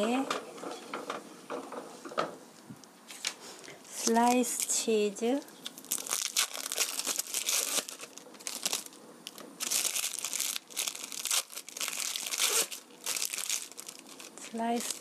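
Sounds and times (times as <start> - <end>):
plastic film crinkling: 3.1 - 15.0.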